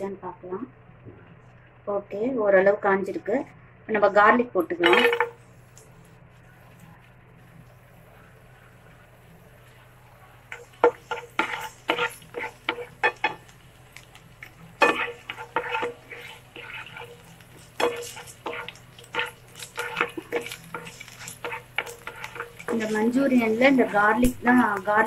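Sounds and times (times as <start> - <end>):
spatula scraping frying pan: 10.5 - 25.0.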